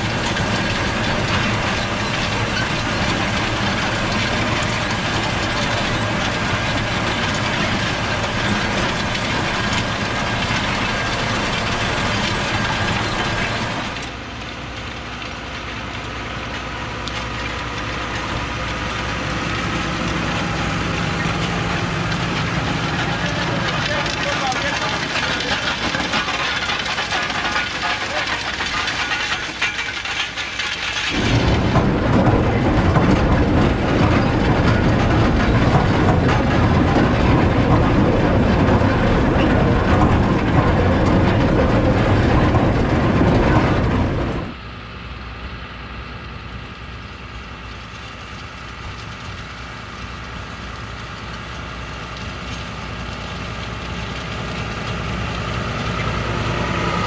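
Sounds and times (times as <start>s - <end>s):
planter mechanical clatter: 0.0s - 57.0s
tractor diesel engine: 0.0s - 57.0s.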